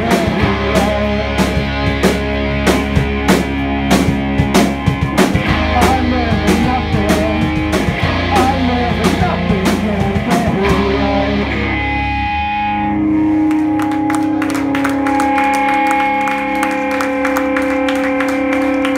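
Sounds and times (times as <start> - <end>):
live rock band playing: 0.0 - 18.9
guitar amplifiers ringing: 10.6 - 18.9.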